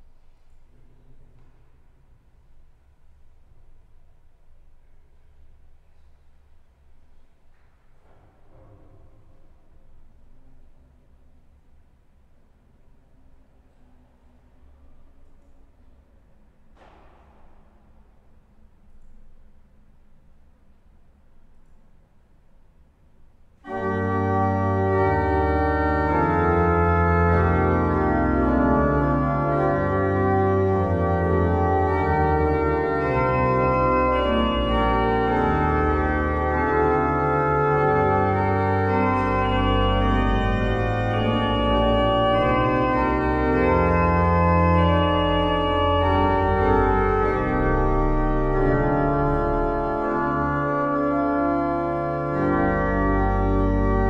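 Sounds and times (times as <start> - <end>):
pipe organ playing held notes: 23.6 - 54.0.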